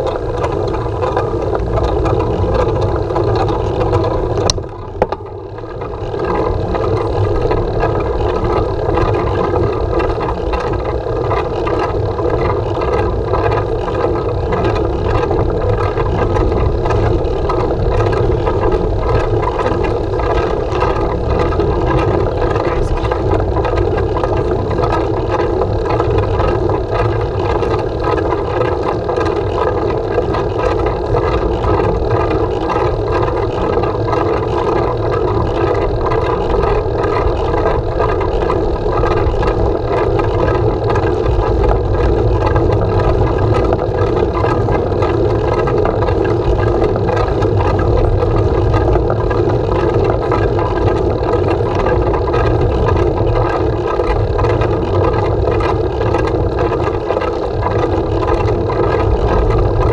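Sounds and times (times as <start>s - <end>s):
bicycle tyres on road: 0.0s - 59.9s
wind buffeting microphone: 0.0s - 59.9s.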